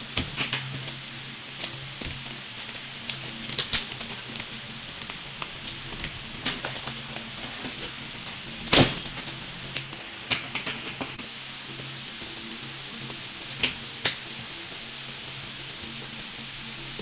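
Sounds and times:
low steady hum: 0.0s - 17.0s
clicks and rustles: 0.1s - 16.3s
cardboard parcel tearing: 1.6s - 11.2s.

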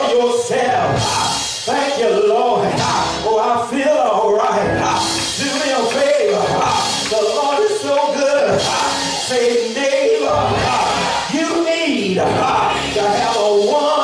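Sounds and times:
person singing: 0.0s - 14.0s
instrumental accompaniment: 4.6s - 14.0s.

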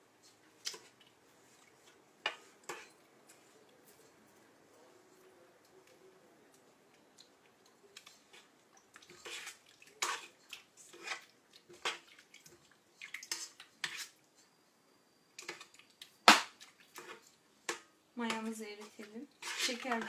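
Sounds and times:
utensil scraping metal bowl: 9.0s - 12.1s, 13.2s - 14.2s, 18.3s - 20.0s.

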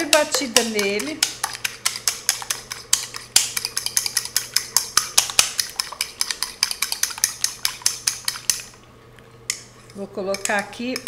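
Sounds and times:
fork clinking on ceramic bowl: 0.0s - 8.6s.

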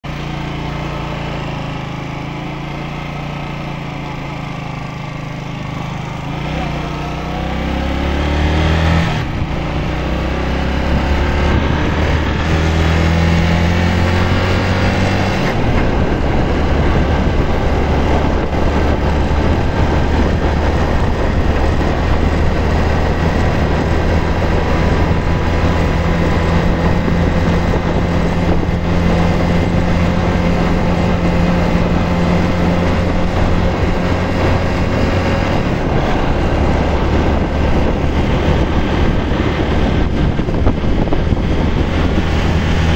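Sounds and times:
vehicle engine running: 0.0s - 42.9s
wind rushing on microphone: 6.4s - 42.9s.

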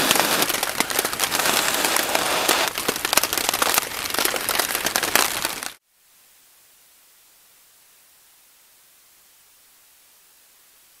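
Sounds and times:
campfire crackling and popping: 0.0s - 5.8s
heavy rain on a plastic tarp: 0.0s - 5.8s
faint steady hiss: 5.8s - 11.0s.

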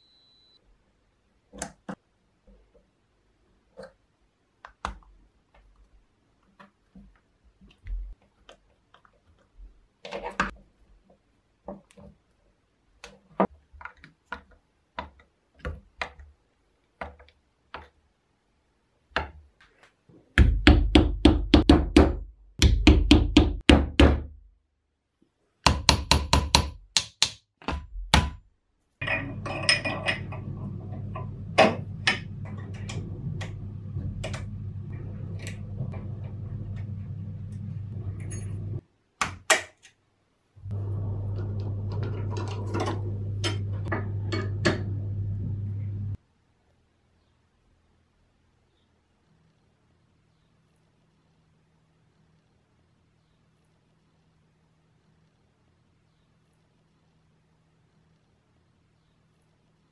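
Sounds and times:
steady low hum: 29.0s - 38.8s, 40.6s - 46.2s.

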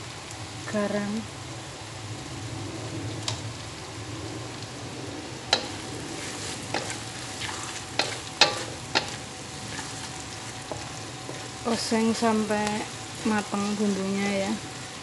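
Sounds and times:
paste sizzling in hot oil: 3.2s - 15.0s
wooden spatula scraping a pan: 5.6s - 14.9s.

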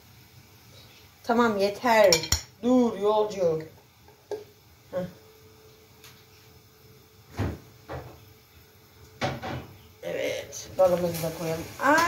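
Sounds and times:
faint steady hum: 0.0s - 12.0s
kitchen knocks and clunks: 7.3s - 8.2s, 9.2s - 9.8s.

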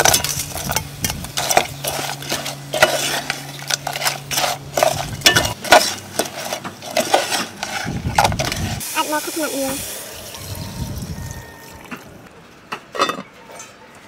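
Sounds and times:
metal utensil scraping and clinking in pot: 0.0s - 9.1s.

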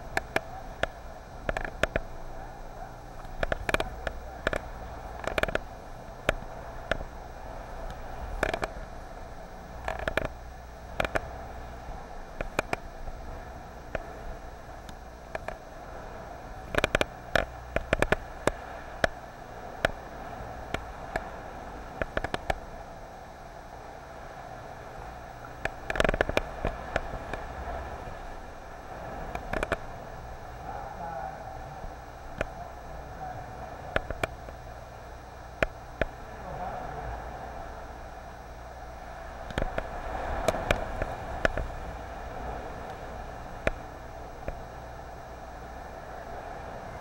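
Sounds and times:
sea water lapping around kayak: 0.0s - 47.0s
steady hiss: 0.0s - 47.0s
paddle clicks and knocks: 0.1s - 2.1s, 3.2s - 7.1s, 7.8s - 8.9s, 9.8s - 11.3s, 12.4s - 12.8s, 16.6s - 19.2s, 22.0s - 22.6s, 25.6s - 27.5s, 29.2s - 29.9s, 32.3s - 32.6s, 33.9s - 34.6s, 39.4s - 41.8s.

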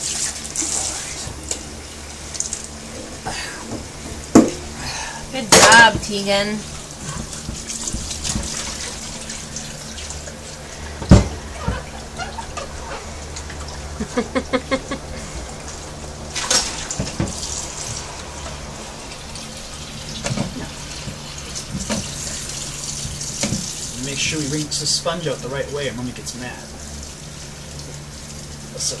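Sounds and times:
tap running into a sink: 7.0s - 10.4s, 16.4s - 18.6s, 20.2s - 24.0s
short squeaks: 11.4s - 13.2s.

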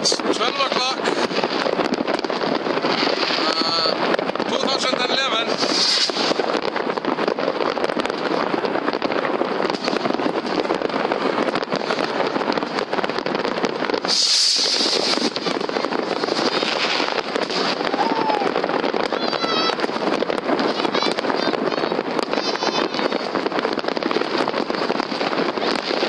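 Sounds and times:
fireworks crackling and popping: 0.0s - 26.0s
brief hiss: 5.6s - 6.3s, 14.1s - 15.3s.

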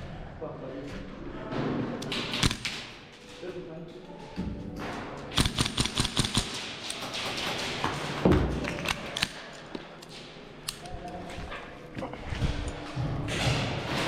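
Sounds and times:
airsoft rifles firing: 2.1s - 3.0s, 5.3s - 9.6s.

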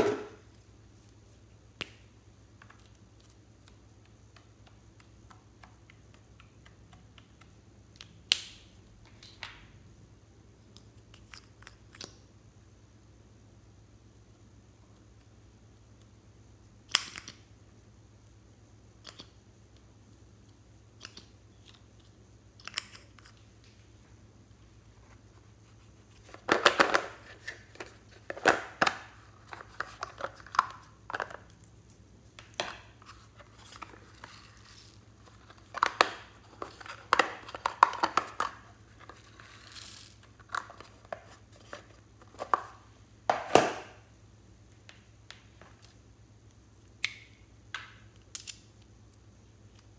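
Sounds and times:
plastic containers clicking and snapping: 35.6s - 38.6s.

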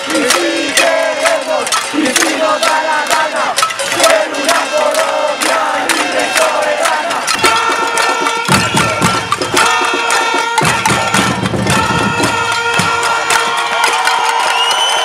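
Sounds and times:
pots and pans being beaten: 0.0s - 14.4s
held horn note: 7.2s - 13.7s.

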